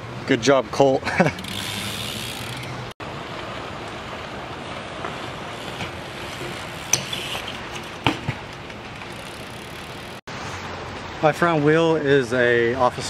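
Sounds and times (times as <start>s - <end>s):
bicycle hub ratcheting: 1.2s - 2.9s, 5.6s - 8.1s, 8.9s - 10.2s.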